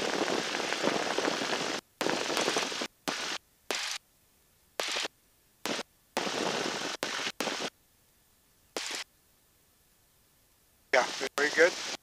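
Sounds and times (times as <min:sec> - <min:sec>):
intercom squelch hiss bursts: 0:11.0 - 0:12.0.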